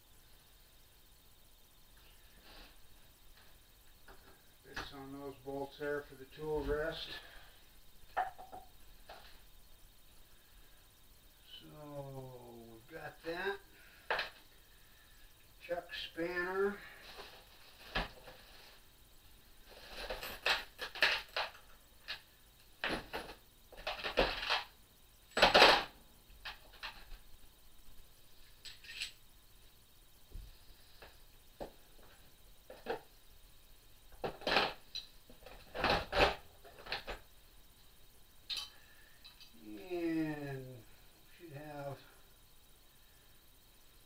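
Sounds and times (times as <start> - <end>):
metal tools clattering: 28.6 - 29.2.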